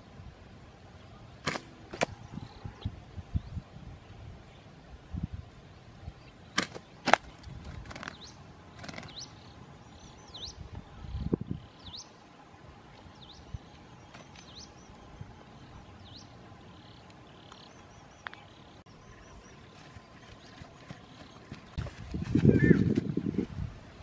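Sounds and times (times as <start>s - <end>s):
small bird chirping: 6.5s - 12.1s
rustling in grass: 19.4s - 23.7s.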